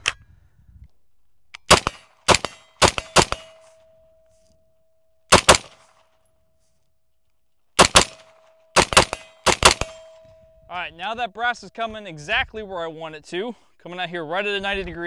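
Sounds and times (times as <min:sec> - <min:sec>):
rifle shots: 0:01.6 - 0:03.8, 0:05.3 - 0:06.0, 0:07.8 - 0:10.3
steel target ringing: 0:02.4 - 0:04.8, 0:08.2 - 0:11.1.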